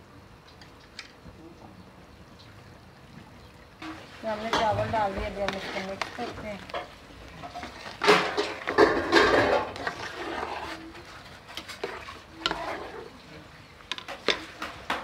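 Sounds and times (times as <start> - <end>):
boiling water: 0.0 - 15.0
metal spoon scraping metal pot: 3.8 - 13.2.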